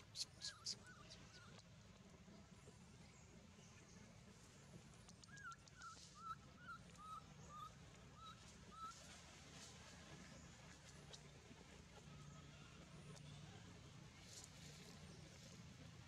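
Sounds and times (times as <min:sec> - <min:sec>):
faint chirping calls: 0:00.0 - 0:01.7, 0:05.0 - 0:09.1.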